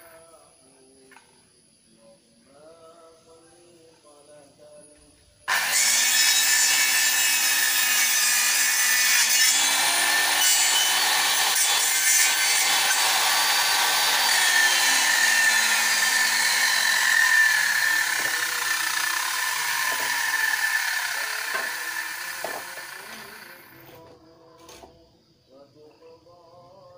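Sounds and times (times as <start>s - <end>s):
circular saw cutting wood: 5.5s - 24.0s.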